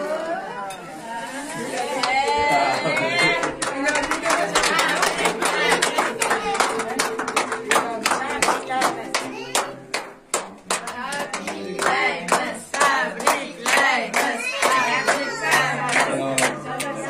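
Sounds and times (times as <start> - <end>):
people singing: 0.7 - 17.0
people clapping rhythmically: 1.8 - 17.0.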